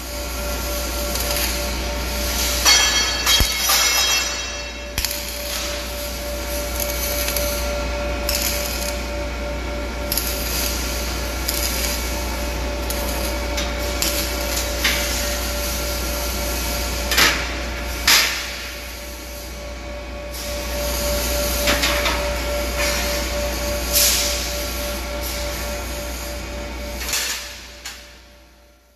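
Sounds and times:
machinery hum: 0:00.0 - 0:28.9
steel workpieces clanking: 0:02.4 - 0:05.9.

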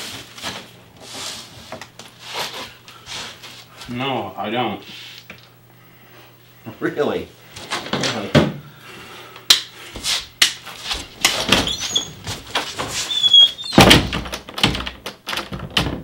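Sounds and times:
footsteps: 0:09.9 - 0:13.2
wooden door squeak: 0:11.5 - 0:16.0.

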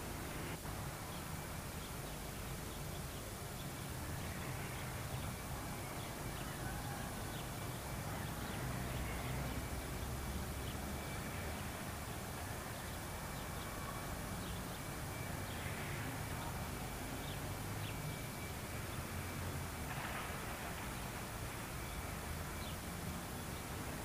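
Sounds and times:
tape hiss: 0:00.0 - 0:24.0.

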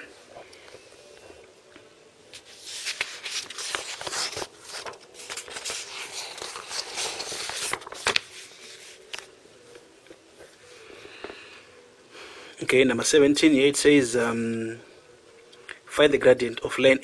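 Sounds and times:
paper sheets rustling: 0:02.3 - 0:11.4.

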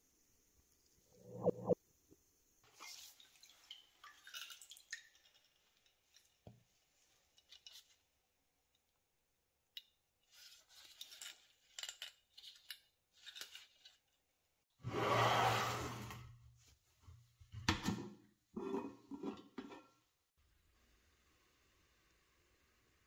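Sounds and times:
small clicks and rustles: 0:02.8 - 0:09.0.

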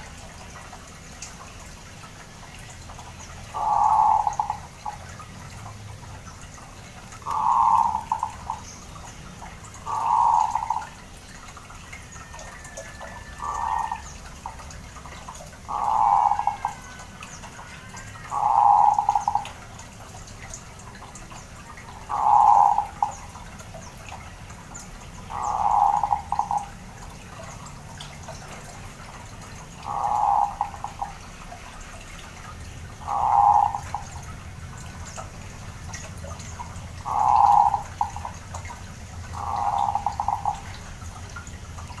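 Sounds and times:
dove cooing: 0:03.5 - 0:05.0, 0:07.1 - 0:08.6, 0:09.8 - 0:11.0, 0:12.4 - 0:14.1, 0:15.5 - 0:19.6, 0:22.0 - 0:23.2, 0:25.3 - 0:26.7, 0:29.8 - 0:31.2, 0:33.0 - 0:34.2, 0:37.0 - 0:38.4, 0:39.3 - 0:40.8.

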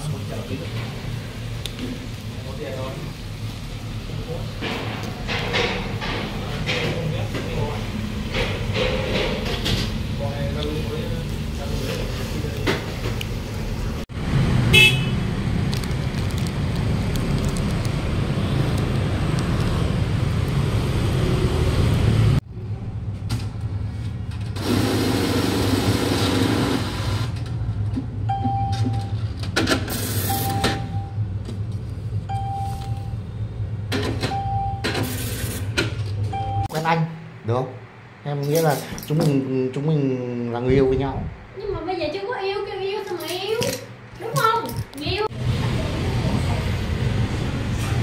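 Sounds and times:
road traffic: 0:00.0 - 0:48.0
car horn toot: 0:14.7 - 0:15.2
short machine beeps: 0:30.2 - 0:31.2, 0:32.3 - 0:33.2, 0:34.3 - 0:34.9.

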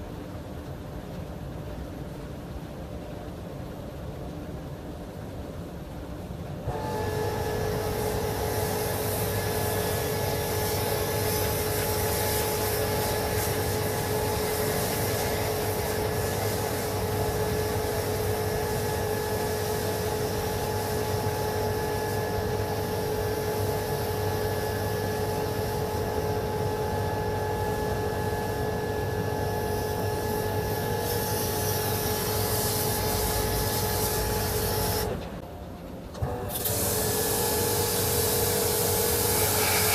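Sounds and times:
machine whining and humming: 0:00.0 - 0:39.9.

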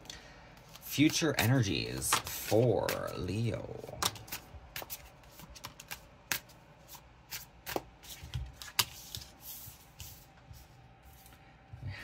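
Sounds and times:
cards being shuffled: 0:00.6 - 0:11.4.

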